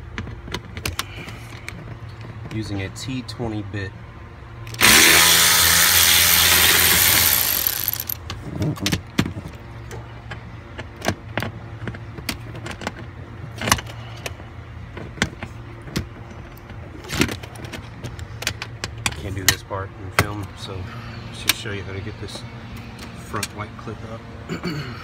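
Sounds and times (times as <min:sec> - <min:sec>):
cordless drill running: 0:04.8 - 0:08.2.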